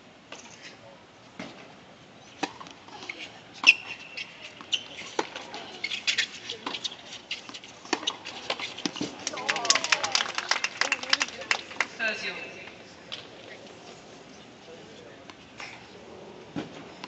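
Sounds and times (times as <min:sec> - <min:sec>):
tennis ball bouncing on hard court: 0:02.4 - 0:02.8
tennis ball struck by rackets: 0:02.4 - 0:02.8.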